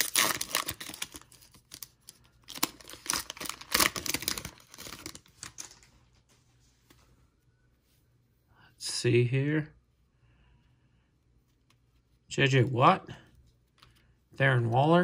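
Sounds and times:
foil wrapper crinkling: 0.0s - 5.9s
foil wrapper tearing: 0.0s - 5.9s.

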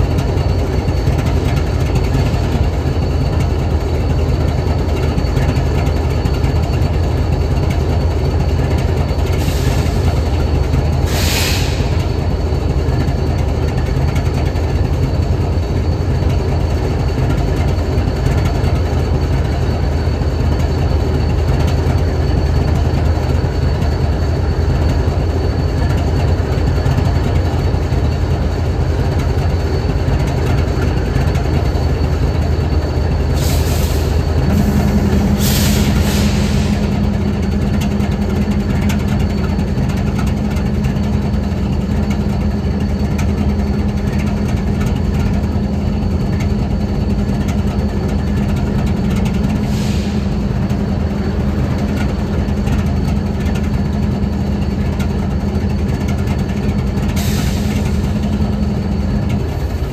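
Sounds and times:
diesel locomotive idling: 0.0s - 59.9s
short air hisses: 11.0s - 12.0s, 33.4s - 37.1s, 49.6s - 50.4s.

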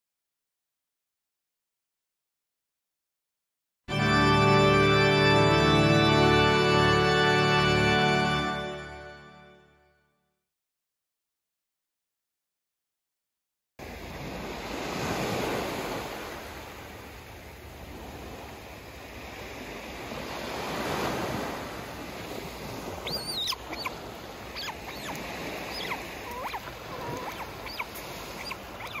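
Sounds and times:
waves washing up beach: 13.8s - 29.0s
otter squeaky chirps: 22.9s - 29.0s.

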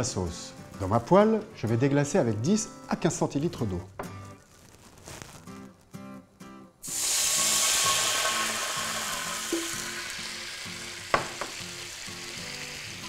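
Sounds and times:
water sizzling in hot pan: 6.8s - 13.0s.

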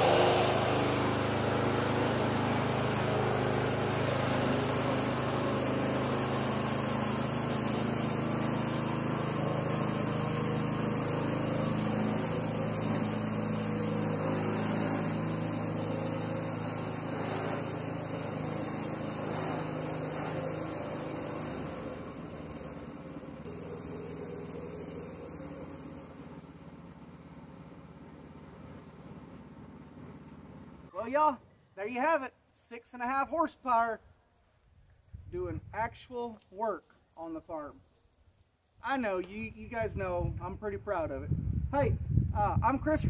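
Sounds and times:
tractor engine running under load: 0.0s - 30.9s.

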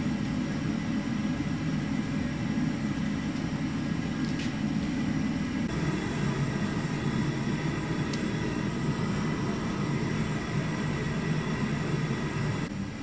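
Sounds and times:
gas burner rushing: 5.6s - 12.7s.

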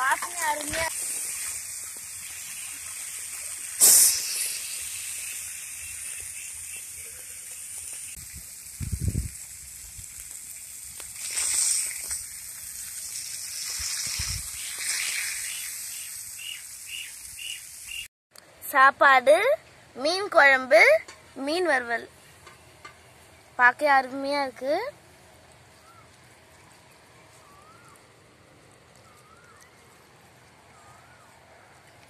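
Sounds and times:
fish sizzling on a griddle: 0.0s - 18.1s.

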